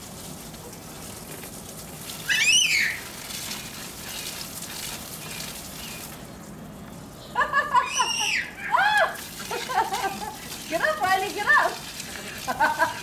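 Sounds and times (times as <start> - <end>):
child squealing: 2.2 - 3.1, 7.8 - 9.2.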